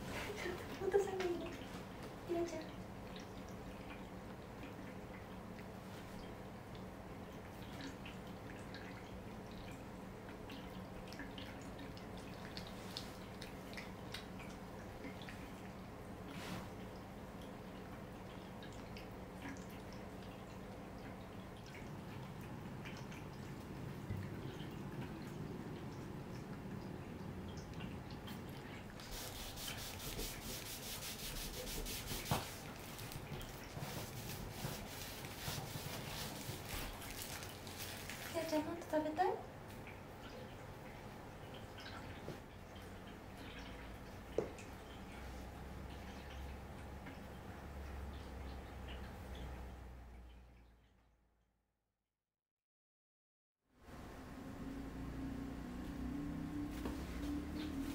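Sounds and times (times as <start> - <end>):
faint low hum: 0.0 - 51.2, 53.9 - 57.9
cats licking and chewing: 6.7 - 16.8, 32.1 - 38.4.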